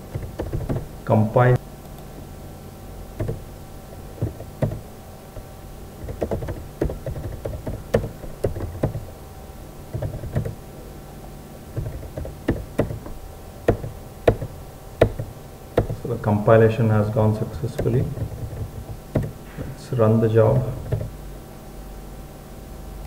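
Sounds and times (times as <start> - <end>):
keyboard keys clicking: 0.0 - 1.0, 3.2 - 9.1, 9.9 - 10.6, 11.8 - 16.1, 17.8 - 19.8, 20.8 - 21.2
steady background hum: 0.0 - 23.0.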